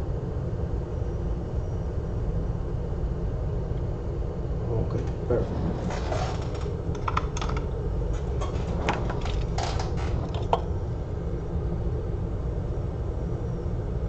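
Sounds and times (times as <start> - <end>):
equipment humming: 3.3 - 14.0.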